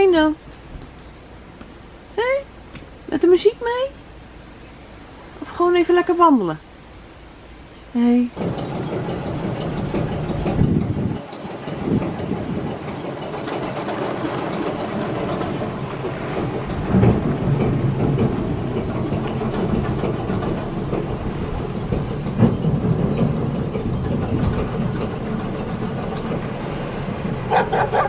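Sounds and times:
boat diesel engine drone: 0:00.0 - 0:28.0
short knocks: 0:08.3 - 0:28.0.

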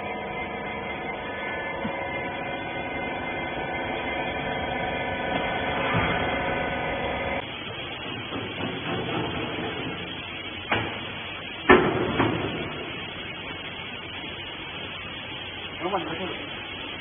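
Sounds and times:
hydraulic pump motor humming: 0:00.0 - 0:13.6.

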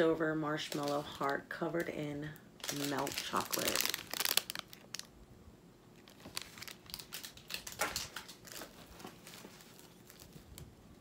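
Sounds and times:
packaging crinkling and rustling: 0:00.6 - 0:01.4, 0:02.6 - 0:05.2, 0:05.9 - 0:10.8.

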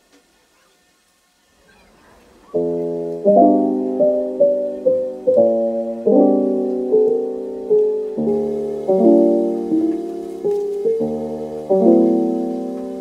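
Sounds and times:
piano music: 0:02.5 - 0:13.0
faint rustle: 0:07.2 - 0:13.0.

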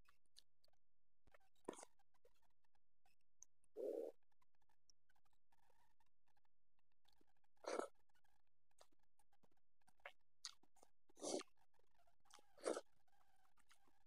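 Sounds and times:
chewing and mouth sounds: 0:01.7 - 0:01.9, 0:09.9 - 0:11.5, 0:12.3 - 0:12.9.

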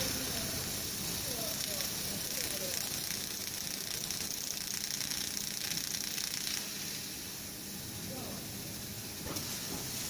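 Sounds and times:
metal cutting crackle: 0:00.0 - 0:07.6
laser cutter gas jet hissing: 0:00.0 - 0:10.0.

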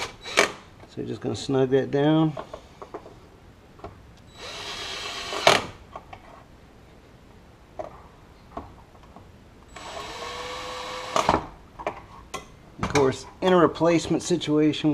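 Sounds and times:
cordless drill driving screw: 0:00.0 - 0:00.6, 0:04.3 - 0:05.8, 0:09.7 - 0:11.4.

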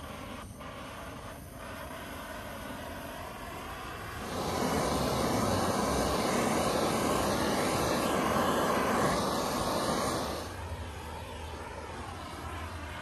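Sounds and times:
blowtorch flame burning: 0:00.0 - 0:13.0.

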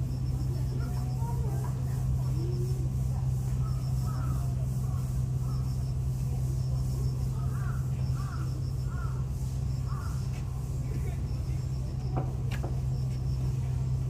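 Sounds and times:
low mechanical hum: 0:00.0 - 0:14.0
crow cawing: 0:04.0 - 0:04.5, 0:07.3 - 0:10.3.

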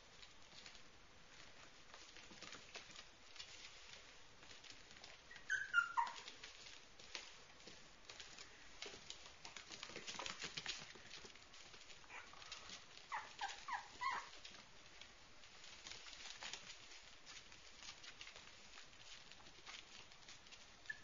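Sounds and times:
puppies whimpering: 0:05.3 - 0:06.3, 0:12.1 - 0:14.4.

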